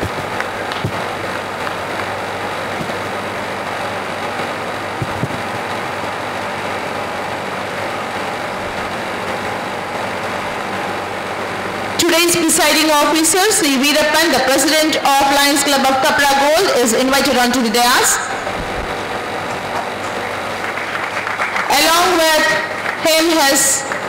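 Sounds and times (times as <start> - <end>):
air conditioner humming: 0.0 - 24.0.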